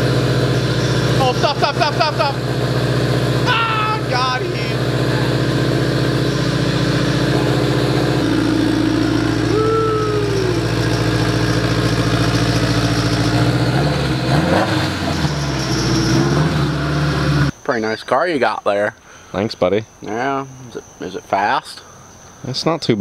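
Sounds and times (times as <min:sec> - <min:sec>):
car engine idling: 0:00.0 - 0:17.6
rising-and-falling tone: 0:03.4 - 0:17.5.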